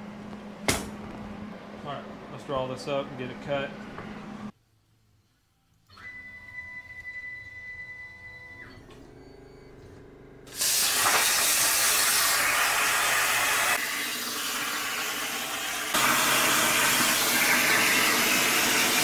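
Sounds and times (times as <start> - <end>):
plasma cutter hissing: 10.5 - 13.8.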